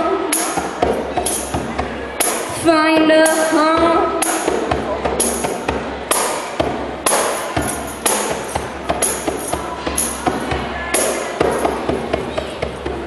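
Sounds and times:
tambourine jingle: 0.4s - 2.4s, 7.1s - 12.0s.

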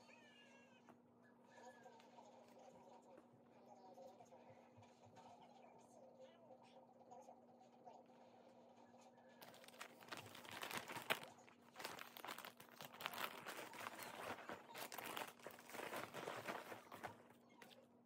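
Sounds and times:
plastic bags crinkling: 9.4s - 17.8s.

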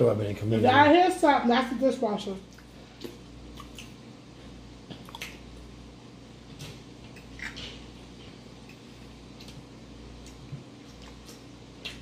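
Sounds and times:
wet chewing and lip-smacking: 2.5s - 5.8s, 6.4s - 12.0s
dishwasher humming: 2.8s - 12.0s.

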